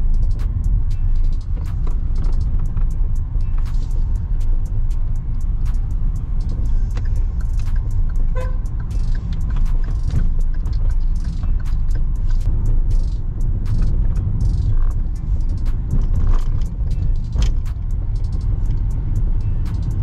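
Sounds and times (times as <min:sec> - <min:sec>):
engine and road rumble: 0:00.0 - 0:20.0
car horn toot: 0:08.2 - 0:08.7.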